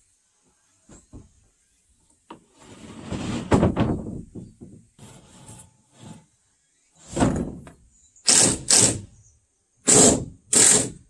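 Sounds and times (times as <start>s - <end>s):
board scraping against wooden beams: 2.3s - 6.4s, 7.0s - 9.1s.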